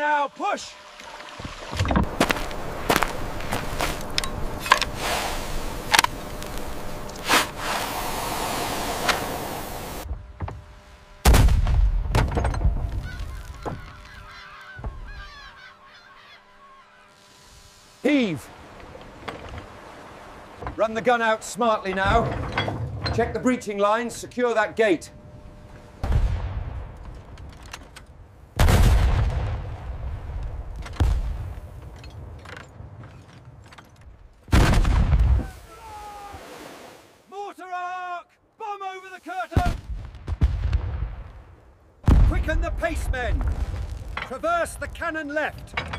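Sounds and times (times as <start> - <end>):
cannon booms: 11.2 - 13.0, 26.0 - 27.0, 28.6 - 31.6, 34.5 - 35.4, 39.6 - 44.2
cannon firing: 11.2 - 13.0, 28.6 - 31.6
seagulls calling: 12.8 - 17.3.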